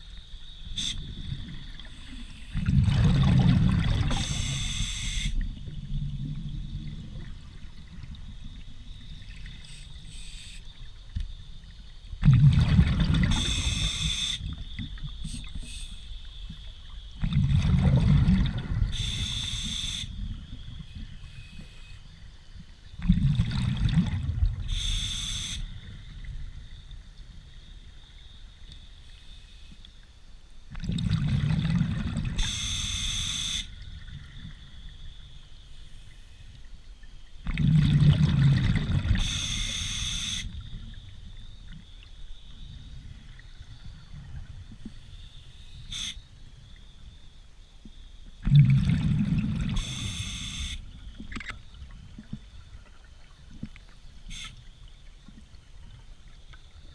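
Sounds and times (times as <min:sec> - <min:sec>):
exhaled bubbles gurgling underwater: 0:00.6 - 0:10.1, 0:10.7 - 0:21.3, 0:22.1 - 0:25.1, 0:30.7 - 0:33.0, 0:36.6 - 0:45.1, 0:48.3 - 0:56.9
regulator hiss: 0:04.1 - 0:05.5, 0:13.3 - 0:14.6, 0:15.2 - 0:16.4, 0:18.9 - 0:20.2, 0:24.7 - 0:25.8, 0:32.4 - 0:33.8, 0:39.1 - 0:40.6, 0:45.1 - 0:46.3, 0:49.7 - 0:50.8, 0:54.3 - 0:54.7.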